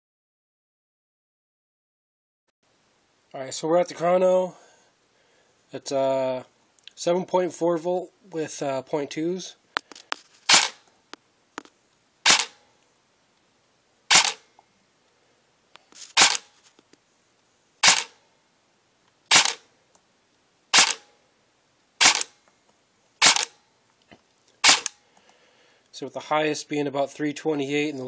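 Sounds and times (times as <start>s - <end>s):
suppressed airsoft gun shots: 10.5s - 10.8s, 12.2s - 12.6s, 14.1s - 14.4s, 16.2s - 16.5s, 17.8s - 18.2s, 19.3s - 19.6s, 20.7s - 21.1s, 22.0s - 22.4s, 23.2s - 23.6s, 24.6s - 25.0s.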